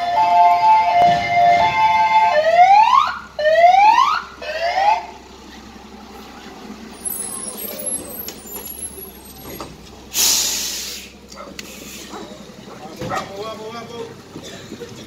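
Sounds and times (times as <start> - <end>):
fire engine siren: 0.0 - 5.2
truck engine driving past: 0.0 - 15.0.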